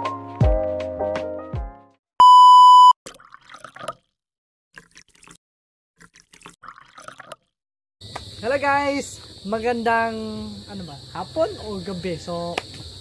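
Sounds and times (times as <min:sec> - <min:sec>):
loud electronic beep: 0:02.2 - 0:03.0.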